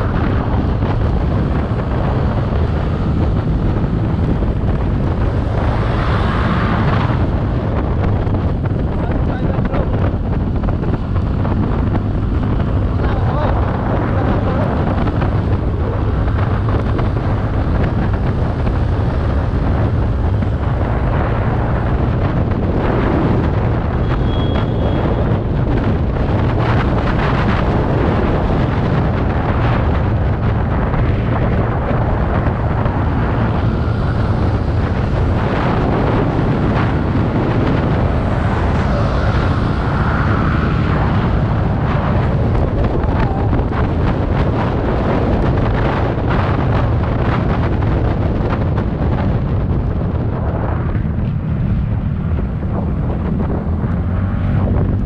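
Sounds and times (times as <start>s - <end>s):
scooter engine drone: 0.0s - 55.0s
wind rushing over microphone: 0.0s - 55.0s.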